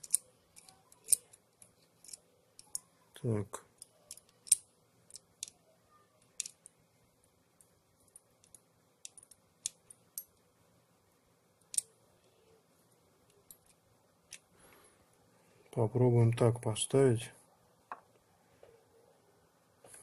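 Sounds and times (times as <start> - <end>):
light clicks of metal parts: 0.0 - 5.6, 6.2 - 6.8, 7.6 - 10.4, 11.6 - 12.0, 13.2 - 14.8.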